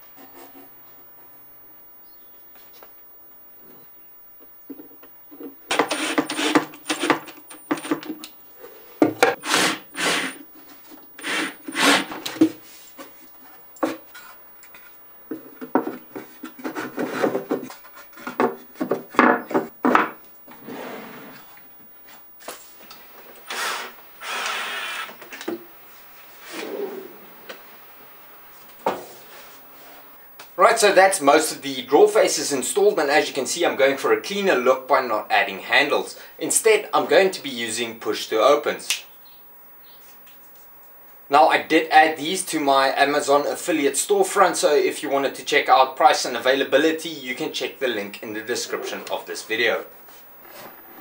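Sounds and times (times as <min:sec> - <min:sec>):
cordless drill driving screws: 0:23.4 - 0:25.2.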